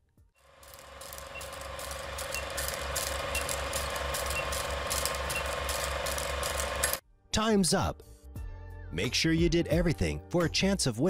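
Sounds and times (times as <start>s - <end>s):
film projector clattering: 0.4s - 7.0s.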